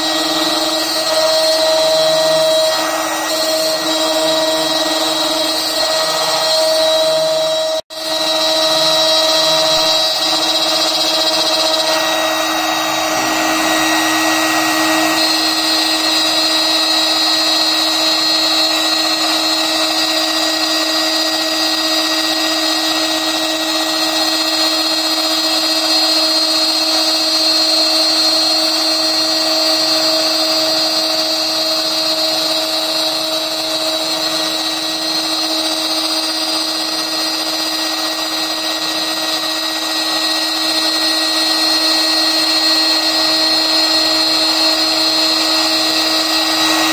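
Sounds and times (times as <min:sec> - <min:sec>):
spindle whining: 0:00.0 - 0:18.9
end mill cutting plastic: 0:00.0 - 0:46.9.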